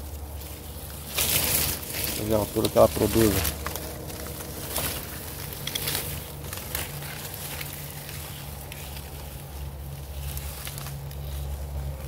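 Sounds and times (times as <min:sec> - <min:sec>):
leaves and twigs rustling: 0:00.0 - 0:12.0
low hum: 0:00.0 - 0:12.0.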